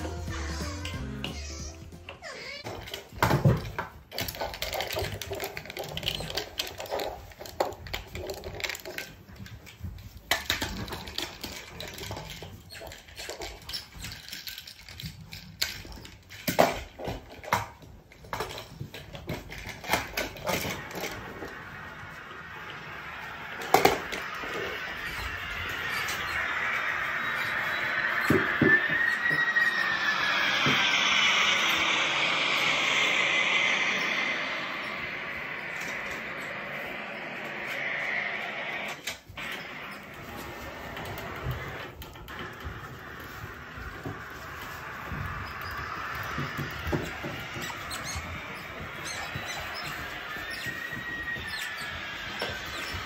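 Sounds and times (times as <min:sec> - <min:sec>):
steady hiss with high tone: 0:18.3 - 0:53.0.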